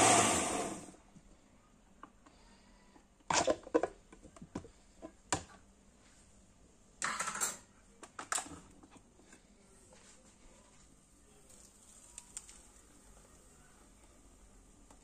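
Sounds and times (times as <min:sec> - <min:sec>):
kitchen items clicking and knocking: 0:07.0 - 0:08.7.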